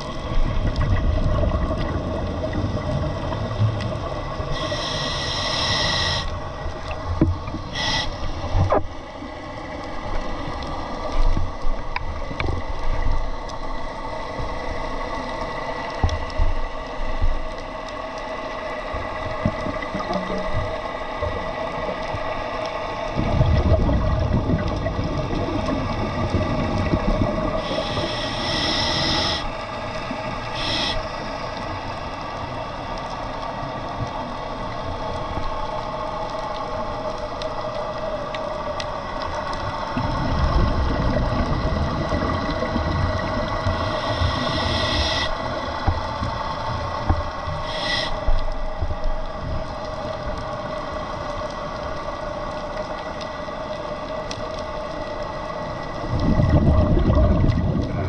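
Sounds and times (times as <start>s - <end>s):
exhaled bubbles rumbling: 0.0s - 4.7s, 18.8s - 28.3s, 33.6s - 47.6s, 48.2s - 58.0s
steady hum: 0.0s - 58.0s
regulator inhalation hiss: 4.5s - 6.4s, 7.7s - 8.5s, 27.6s - 29.6s, 30.4s - 31.4s, 43.7s - 45.5s, 47.6s - 48.4s.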